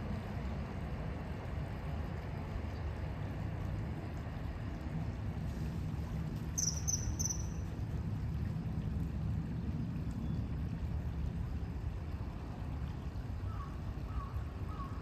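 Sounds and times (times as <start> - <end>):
river water flowing over concrete: 0.0 - 15.0.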